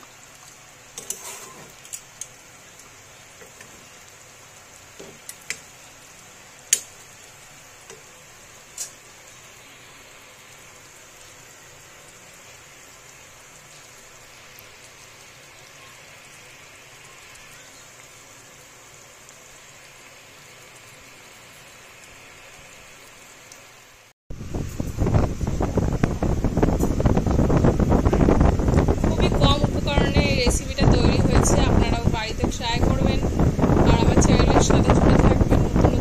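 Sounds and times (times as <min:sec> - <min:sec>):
curry simmering hiss: 0:00.0 - 0:36.0
metal spatula clicking on pan: 0:06.7 - 0:06.9.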